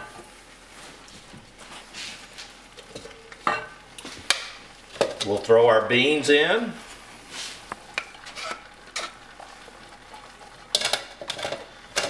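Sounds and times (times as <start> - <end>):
wooden spoon scraping a pot: 6.8 - 9.6.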